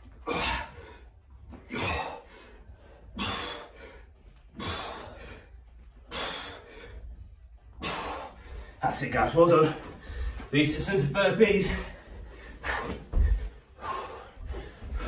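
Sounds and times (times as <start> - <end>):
man breathing hard: 0.0 - 8.9, 9.6 - 10.5, 11.6 - 15.0.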